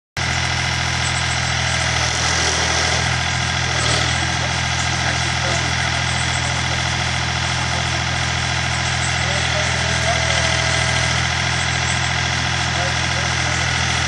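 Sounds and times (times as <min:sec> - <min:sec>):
truck engine idling: 0:00.2 - 0:14.0.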